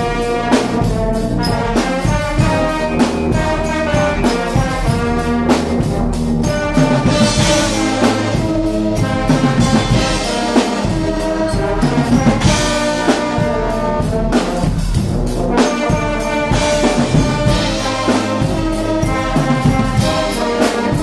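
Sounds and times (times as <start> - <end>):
brass band playing: 0.0 - 21.0
driving drum beat: 0.0 - 21.0.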